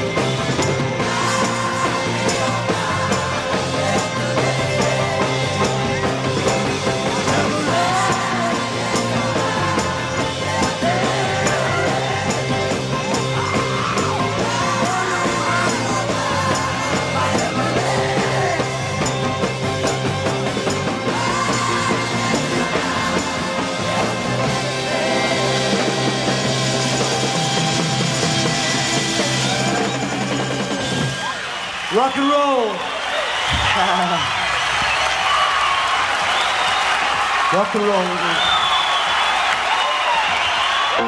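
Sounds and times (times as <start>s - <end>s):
rock band playing: 0.0s - 32.7s
man singing: 7.3s - 12.0s, 14.4s - 18.8s.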